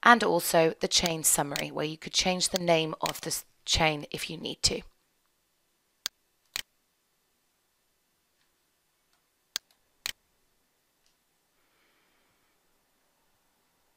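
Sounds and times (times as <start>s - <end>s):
computer mouse clicks: 1.0s - 1.7s.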